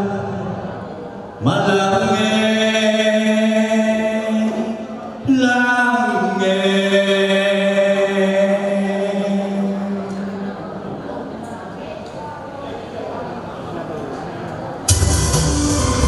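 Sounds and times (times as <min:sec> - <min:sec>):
man singing into a microphone: 0:01.4 - 0:10.6
musical accompaniment: 0:14.9 - 0:16.0.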